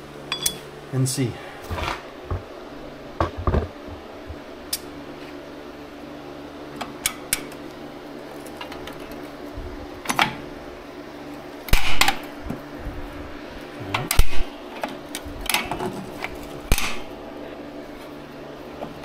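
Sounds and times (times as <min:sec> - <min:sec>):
steady low hum: 0:00.0 - 0:19.0
tools and brake parts clanking: 0:00.3 - 0:00.6.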